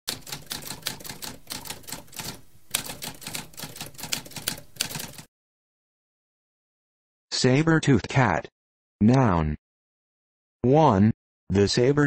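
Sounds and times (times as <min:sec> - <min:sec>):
typewriter keys clacking: 0:00.1 - 0:05.3.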